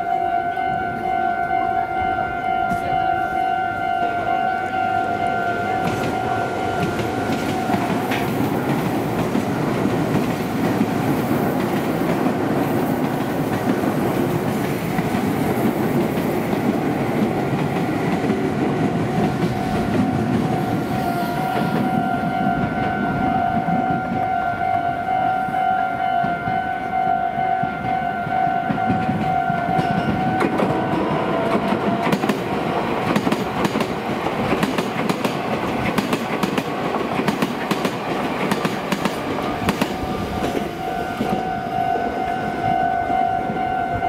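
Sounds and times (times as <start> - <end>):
level crossing alarm ringing: 0.0 - 8.4, 18.8 - 32.6, 39.4 - 44.0
train wheels clattering over rails: 5.8 - 22.9, 28.7 - 41.5.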